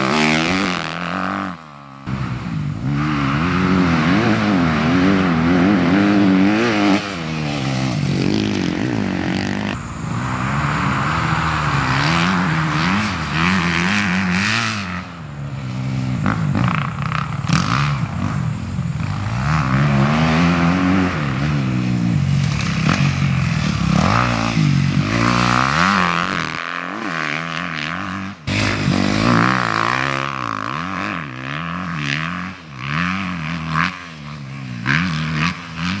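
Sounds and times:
motocross bike engine revving: 0.0 - 36.0.

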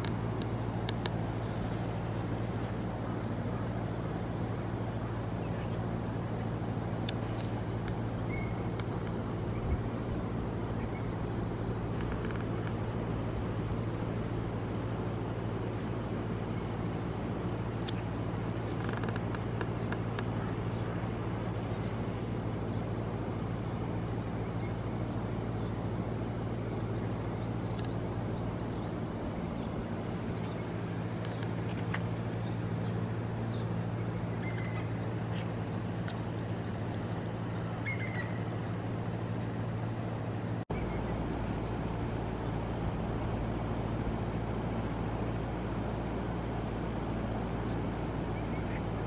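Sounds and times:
steady low hum: 0.0 - 49.0
faint bird chirps: 8.2 - 8.7, 32.4 - 38.5.

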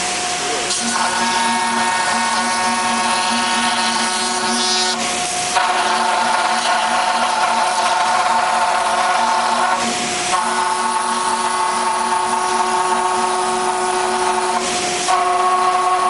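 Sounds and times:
router spindle whine: 0.0 - 16.0.

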